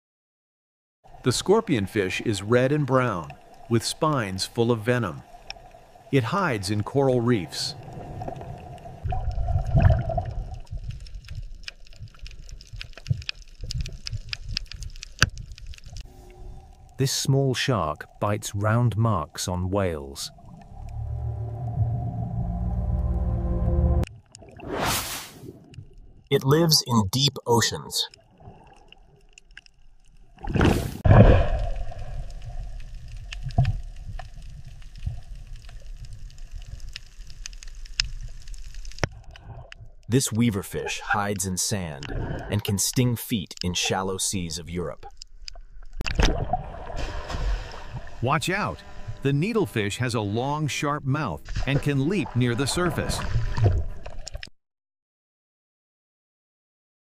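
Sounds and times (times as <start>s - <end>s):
underwater bubbling and gurgling: 1.1s - 22.6s, 28.1s - 44.0s, 44.9s - 49.3s, 51.4s - 54.5s
low rumbling water noise: 1.1s - 27.0s, 27.7s - 42.9s, 44.8s - 54.5s
underwater rushing burst: 6.1s - 10.9s, 24.5s - 25.7s, 30.4s - 32.8s
sharp clicks and crackles: 8.3s - 16.9s, 31.8s - 40.2s, 45.0s - 46.4s
faint clicks: 10.5s - 17.0s.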